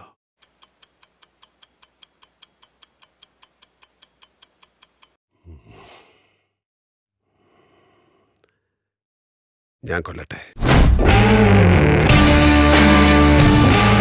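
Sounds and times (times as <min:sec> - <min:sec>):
faint rapid ticking: 0:00.4 - 0:05.2.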